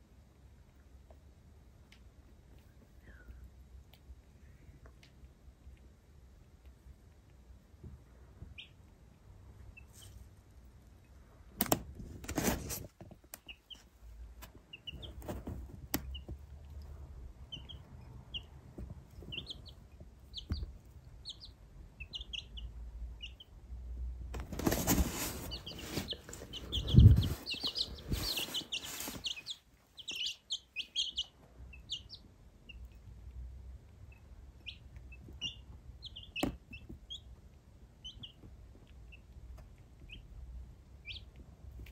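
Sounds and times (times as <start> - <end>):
baby chicks peeping: 0.5 - 41.9
rustling: 11.8 - 21.5, 24.2 - 32.0.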